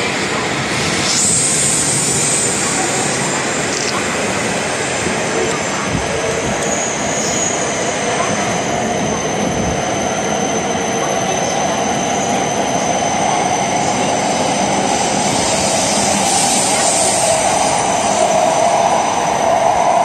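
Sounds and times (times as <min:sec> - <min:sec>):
train wheels rushing past: 0:00.0 - 0:20.0
high hiss: 0:00.6 - 0:05.4, 0:14.4 - 0:20.0.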